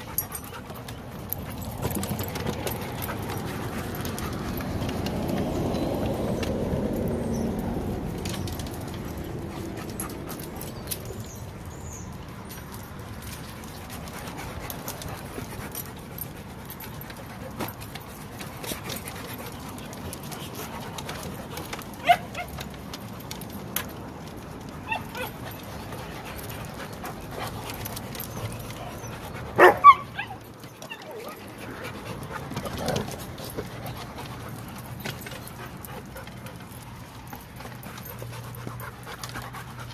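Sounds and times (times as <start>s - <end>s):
dog yips: 24.8s - 25.4s, 28.8s - 31.4s.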